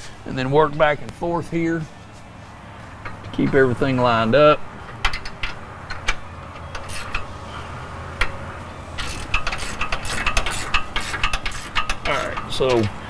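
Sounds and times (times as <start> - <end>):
hand ratchet clicking: 3.0 - 7.3, 9.0 - 12.9.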